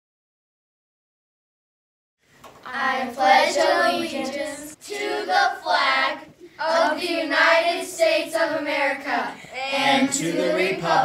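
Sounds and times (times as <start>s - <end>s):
children reciting in unison: 2.7s - 11.0s.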